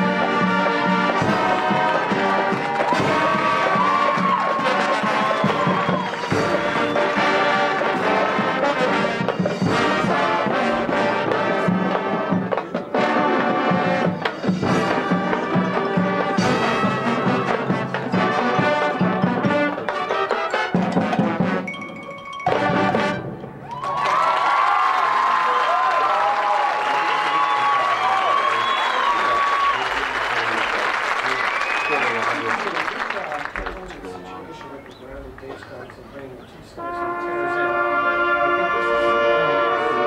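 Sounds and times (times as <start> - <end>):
marching band playing: 0.0 - 26.2, 36.8 - 40.0.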